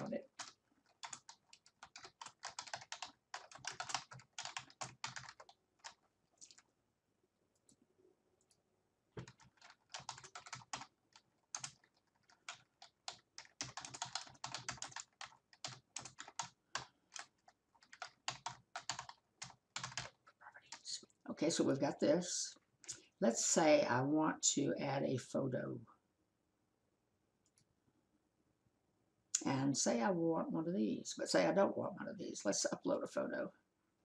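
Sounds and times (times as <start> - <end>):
typing on computer keyboard: 0.0 - 6.6, 9.2 - 20.4.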